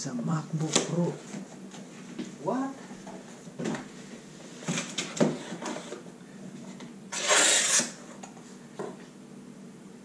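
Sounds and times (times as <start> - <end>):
cardboard scraping: 4.5 - 8.2.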